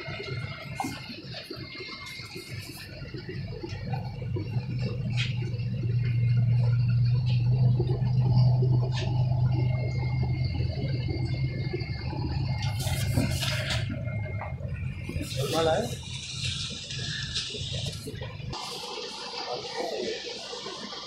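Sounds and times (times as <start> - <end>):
electric hum of air pumps: 0.0 - 21.0.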